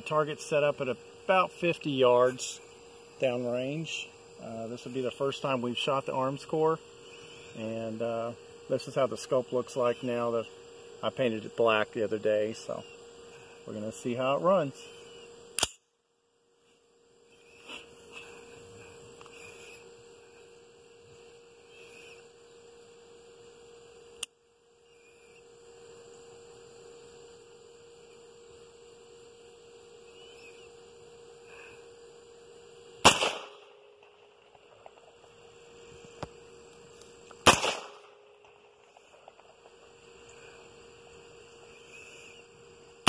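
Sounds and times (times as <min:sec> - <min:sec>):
steady hum with high whine: 0:00.0 - 0:43.0
rifle shots: 0:33.0 - 0:33.8, 0:37.4 - 0:39.6.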